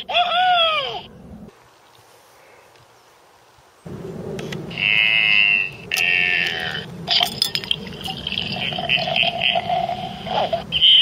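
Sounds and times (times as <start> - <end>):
drink pouring into glass: 7.1 - 9.9.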